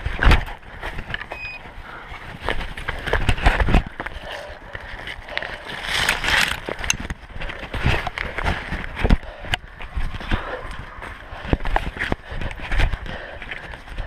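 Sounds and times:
footsteps through undergrowth: 2.0s - 13.7s
plastic bag crinkling: 5.0s - 7.0s.

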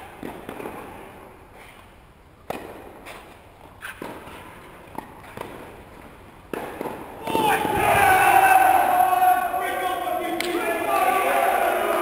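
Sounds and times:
tennis ball hit with rackets: 0.1s - 1.1s, 2.4s - 7.9s.

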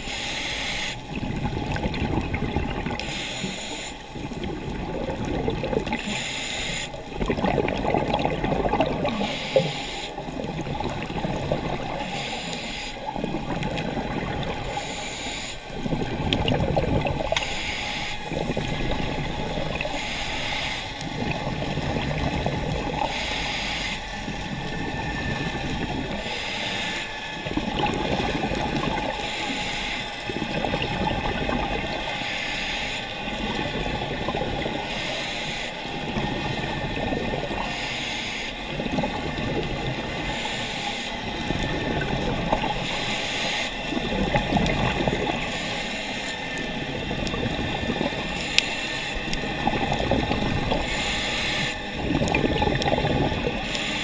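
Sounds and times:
scuba regulator inhale hiss: 0.0s - 1.1s, 3.0s - 4.1s, 5.9s - 7.0s, 9.1s - 10.2s, 11.9s - 13.1s, 14.6s - 15.8s, 17.2s - 18.4s, 19.8s - 21.1s, 23.0s - 24.5s, 26.1s - 27.3s, 29.1s - 30.2s, 32.1s - 33.6s, 34.8s - 35.9s, 37.6s - 38.7s, 40.2s - 41.3s, 42.7s - 43.9s, 45.3s - 46.5s, 48.2s - 49.3s, 50.7s - 51.9s, 53.5s - 54.0s
bubbling exhale: 0.0s - 54.0s.

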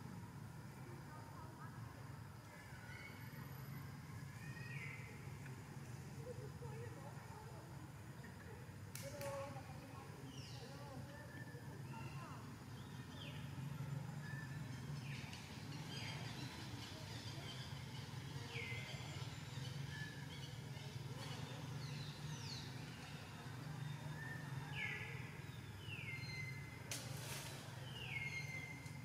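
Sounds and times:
brief crackle: 26.9s - 27.7s.

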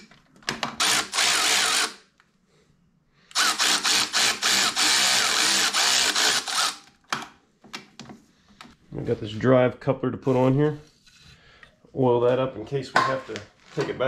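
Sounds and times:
cordless power tool spinning: 0.7s - 2.0s, 3.3s - 7.0s.

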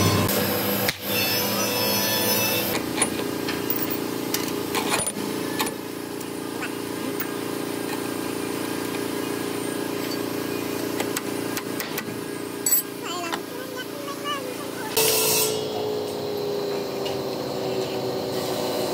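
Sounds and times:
steel collars clinking: 12.6s - 12.9s.

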